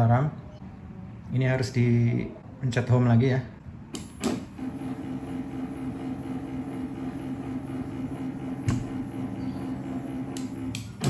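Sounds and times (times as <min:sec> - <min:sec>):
sharp click: 0:03.9 - 0:04.4
stepper motors humming: 0:04.4 - 0:11.0.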